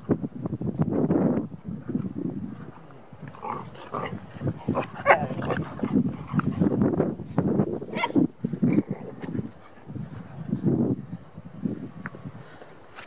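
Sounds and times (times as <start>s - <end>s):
dogs growling: 3.2s - 6.8s, 7.9s - 9.8s.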